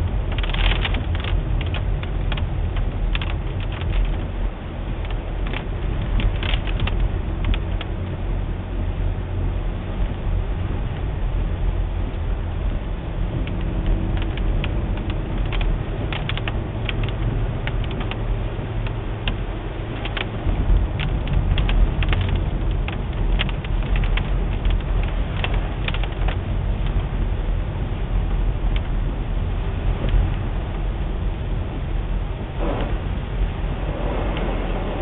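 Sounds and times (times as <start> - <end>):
car road and engine rumble: 0.0 - 35.0
small sharp clicks: 13.4 - 18.2.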